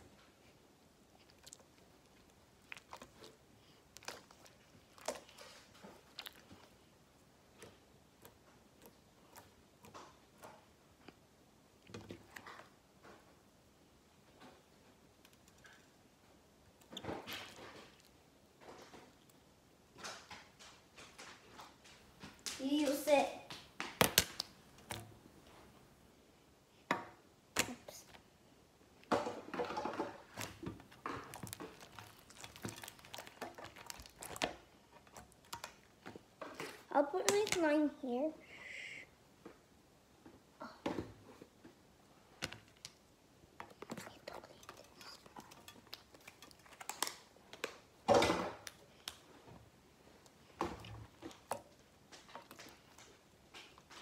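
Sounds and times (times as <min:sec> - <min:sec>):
slime crackling and squishing: 0:01.1 - 0:06.9, 0:30.3 - 0:36.1.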